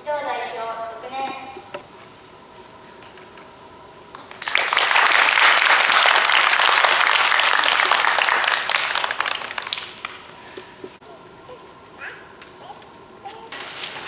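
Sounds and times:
audience applauding: 0:04.1 - 0:10.4.

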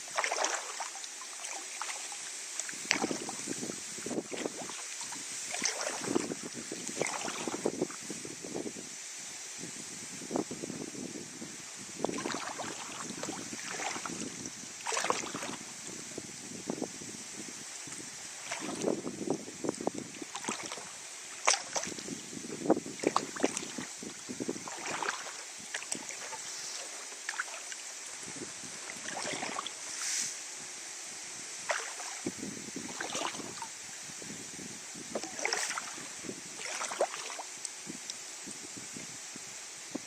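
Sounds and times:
paddle splashing water: 0:00.0 - 0:08.7, 0:12.0 - 0:16.2, 0:17.8 - 0:30.4, 0:31.6 - 0:34.2, 0:35.0 - 0:39.1
steady high hiss: 0:00.0 - 0:40.0.

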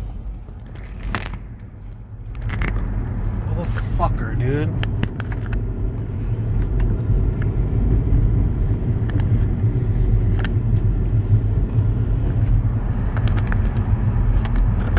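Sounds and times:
car engine and road noise: 0:00.0 - 0:14.9.

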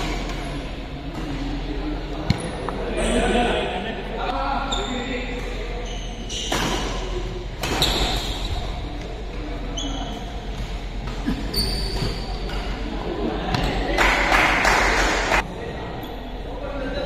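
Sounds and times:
shoes squeaking on court floor: 0:04.6 - 0:08.8, 0:09.6 - 0:12.8.

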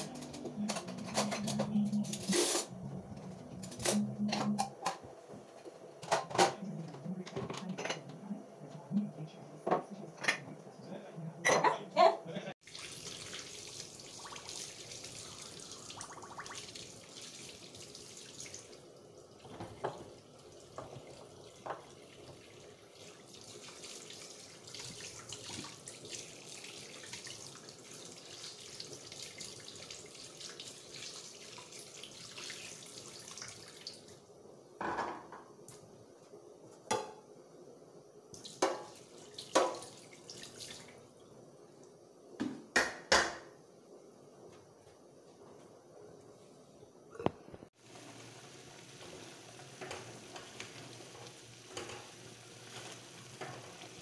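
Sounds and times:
dishes and utensils clattering: 0:00.0 - 0:05.1, 0:06.0 - 0:08.2, 0:11.4 - 0:11.9, 0:49.8 - 0:54.0.

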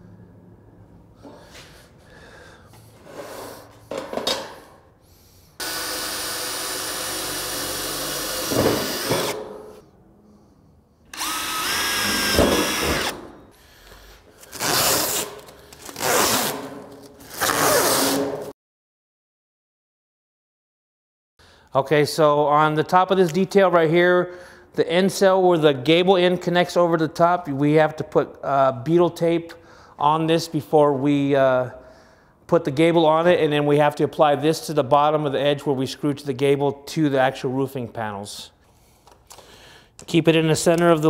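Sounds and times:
cordless drill whining: 0:05.6 - 0:09.4, 0:11.1 - 0:13.2.

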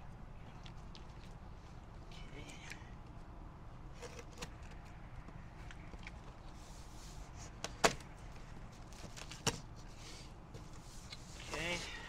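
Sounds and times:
low background noise: 0:00.0 - 0:12.0.

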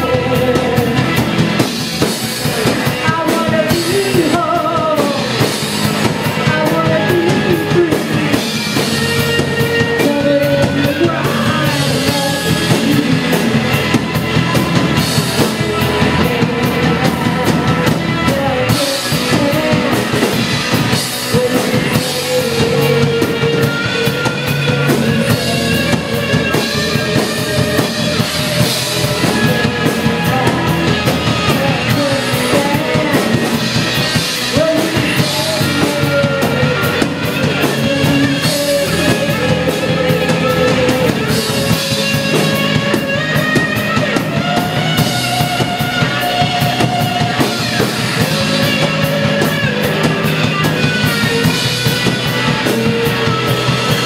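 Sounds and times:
drum kit: 0:00.0 - 0:54.0
electric guitar: 0:00.0 - 0:54.0
person singing: 0:00.0 - 0:54.0.

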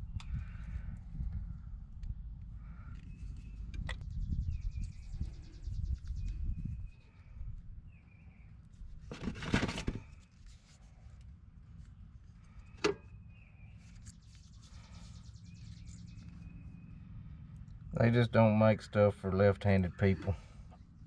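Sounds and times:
rustling handling noise: 0:08.8 - 0:12.9
faint bird chirps: 0:12.4 - 0:18.1.

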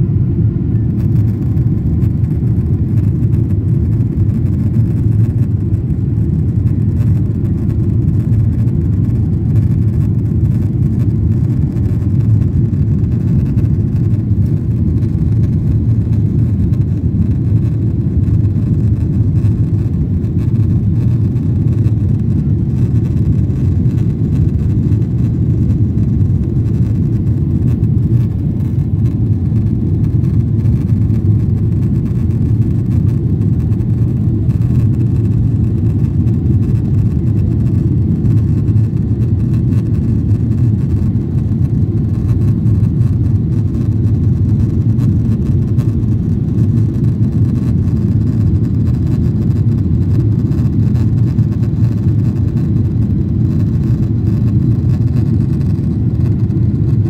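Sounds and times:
airplane cabin engine rumble: 0:00.0 - 0:57.0.

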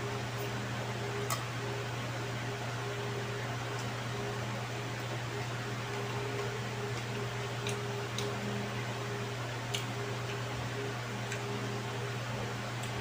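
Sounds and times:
electric fan humming: 0:00.0 - 0:13.0
faint eating clicks: 0:05.8 - 0:08.6, 0:09.6 - 0:10.5, 0:11.2 - 0:11.6, 0:12.7 - 0:13.0.

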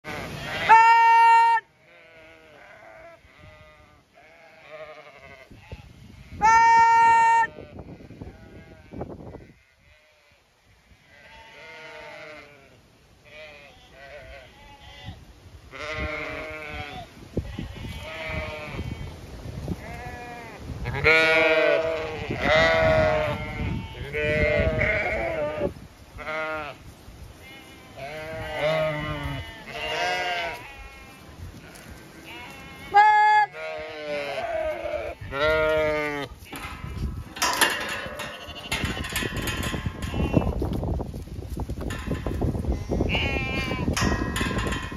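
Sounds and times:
sheep bleating: 0:00.0 - 0:10.4, 0:11.0 - 0:19.1, 0:19.8 - 0:26.8, 0:27.4 - 0:39.3, 0:42.8 - 0:44.1.

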